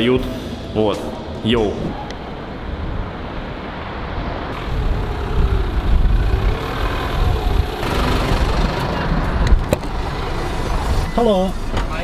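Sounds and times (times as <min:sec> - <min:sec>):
taxi engine and tyres: 0:01.9 - 0:12.0.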